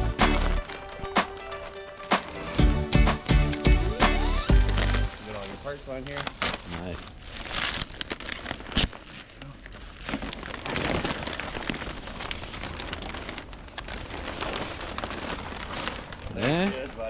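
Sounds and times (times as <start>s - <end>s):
plastic wrap crinkling and tearing: 4.3s - 17.0s.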